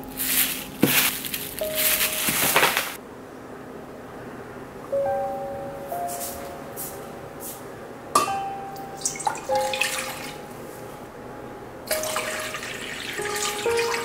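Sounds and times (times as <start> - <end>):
water pouring into metal pot: 12.0 - 14.0.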